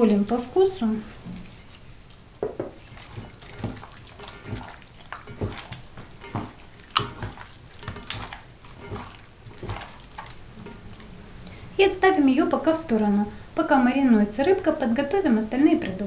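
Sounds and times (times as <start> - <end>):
wet squelches of fish: 1.2 - 11.1
fish knocking against metal bowl: 2.4 - 10.9.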